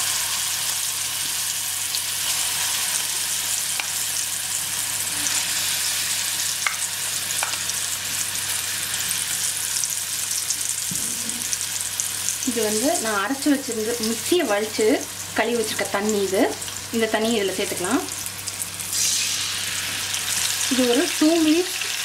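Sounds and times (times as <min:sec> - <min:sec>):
paste sizzling in hot oil: 0:17.8 - 0:22.0.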